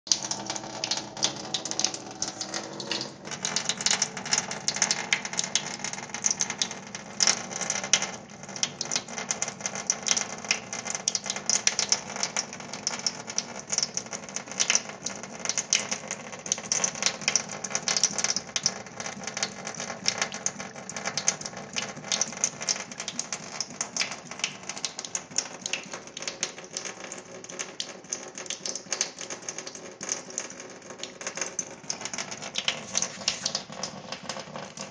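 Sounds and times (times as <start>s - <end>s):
cat lapping water: 0.1s - 5.9s, 15.4s - 34.9s
tap water splashing into sink: 0.1s - 34.9s.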